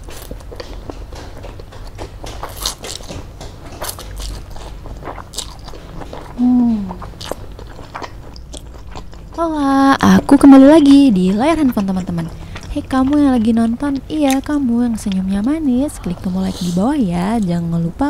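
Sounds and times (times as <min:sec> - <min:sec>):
woman humming: 0:06.4 - 0:07.1.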